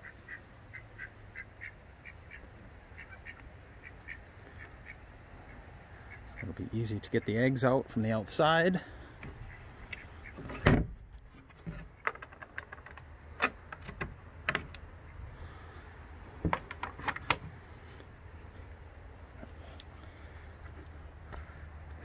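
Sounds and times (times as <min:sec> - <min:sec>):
wooden door shutting with knock: 0:10.5 - 0:11.0
metal door latch clicking: 0:12.0 - 0:14.8.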